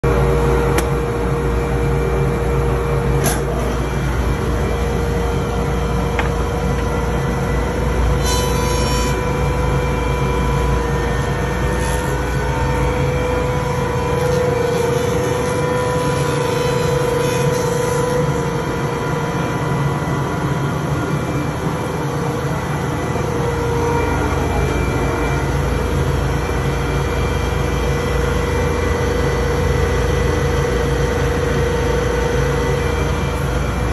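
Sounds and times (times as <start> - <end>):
thickness planer humming and whining: 0.0 - 33.9.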